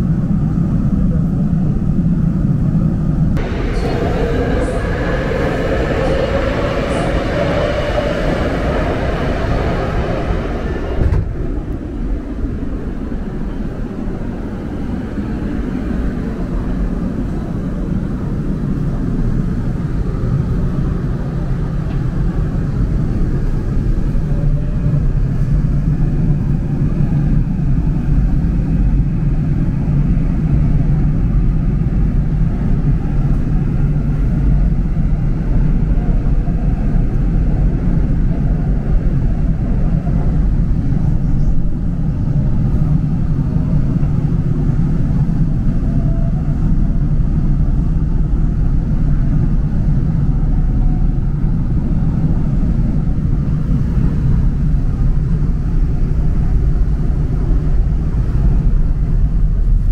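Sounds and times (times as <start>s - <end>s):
faint hum: 0.0s - 59.9s
subway train rumbling: 0.0s - 59.9s.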